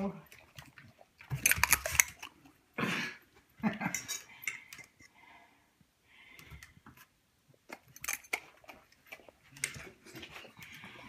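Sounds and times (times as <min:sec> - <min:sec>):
dogs chewing and licking: 0:00.0 - 0:02.7, 0:06.4 - 0:11.0.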